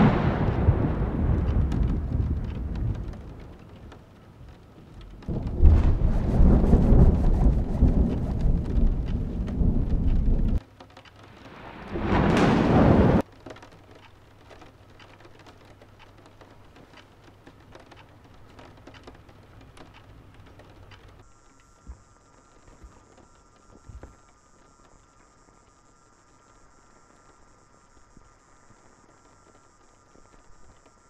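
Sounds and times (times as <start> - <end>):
deep storm-like rumble: 0.0 - 10.6, 11.3 - 13.2
faint ticks: 0.0 - 12.5, 13.2 - 31.0
rain: 0.0 - 31.0.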